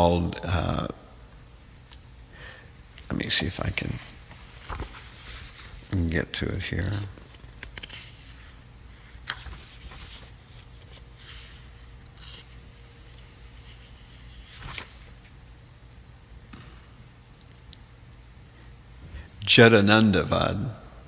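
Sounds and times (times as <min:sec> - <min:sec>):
low background hum: 0:00.0 - 0:21.0
paper rustling: 0:03.7 - 0:05.8, 0:06.7 - 0:08.6, 0:09.2 - 0:15.3.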